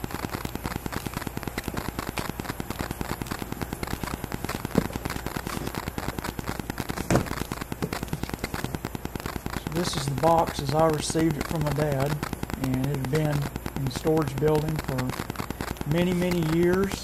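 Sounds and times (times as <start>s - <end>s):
electrical interference crackle: 0.0s - 17.0s.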